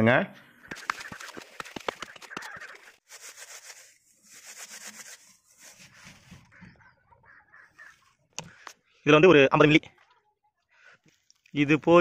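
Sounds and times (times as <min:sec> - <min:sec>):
rough rubbing strokes: 0:00.7 - 0:07.0.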